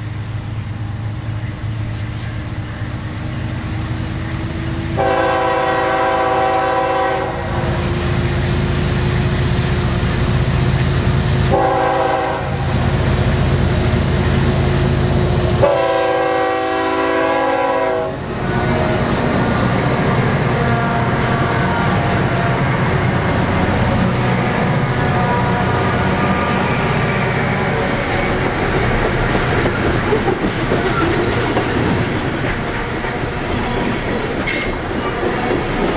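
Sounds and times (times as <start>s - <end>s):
diesel locomotive engines rumbling: 0.0s - 35.9s
wheels on rail: 0.0s - 35.9s
locomotive horn blasts: 4.9s - 7.7s, 11.5s - 12.7s, 15.5s - 23.0s, 23.9s - 28.0s.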